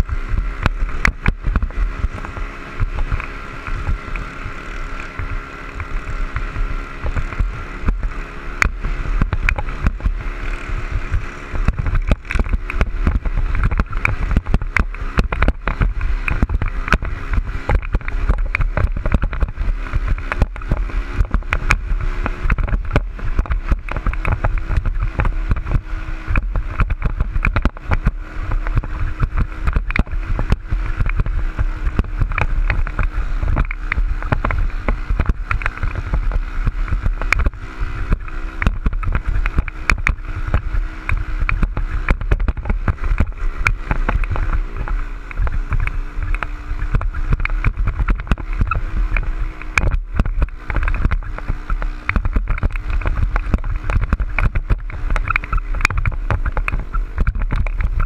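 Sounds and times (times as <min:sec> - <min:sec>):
dirt bike engine running: 0:00.0 - 0:58.0
wind buffeting microphone: 0:00.0 - 0:58.0.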